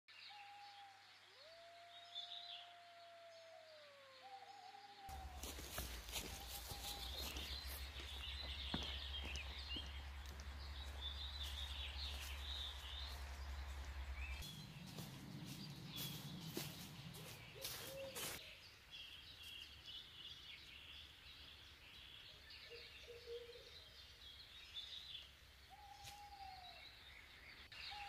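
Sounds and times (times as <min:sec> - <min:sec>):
songbirds singing: 0:00.1 - 0:28.0
footsteps on leaf litter: 0:05.1 - 0:18.5
steady low rumble: 0:08.2 - 0:17.6.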